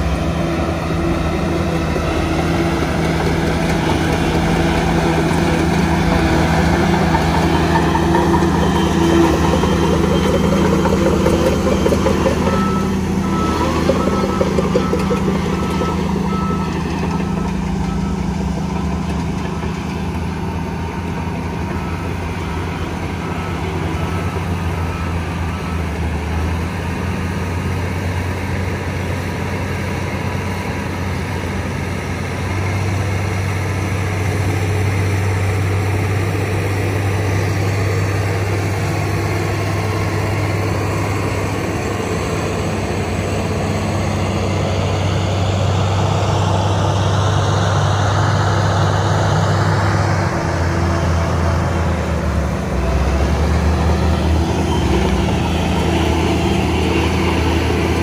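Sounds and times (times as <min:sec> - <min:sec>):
bulldozer diesel engine under load: 0:00.0 - 0:58.0
faint high beeps: 0:08.0 - 0:18.6.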